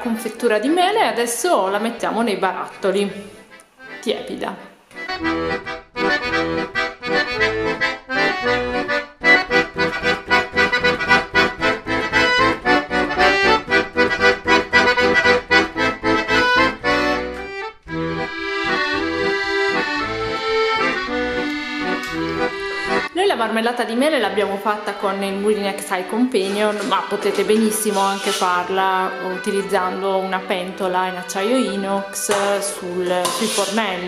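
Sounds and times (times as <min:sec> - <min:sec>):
lively instrumental music: 0:01.6 - 0:34.0.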